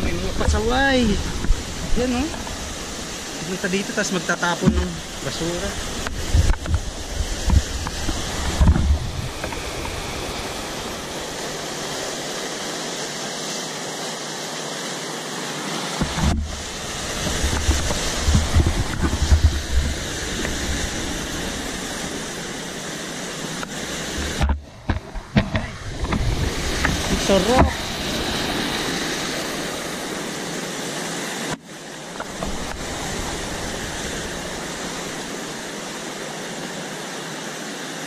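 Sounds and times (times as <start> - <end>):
wind buffeting microphone: 0.0 - 4.0, 4.7 - 12.4, 16.0 - 30.8, 32.2 - 36.2
stream rushing over boulders: 0.0 - 38.0.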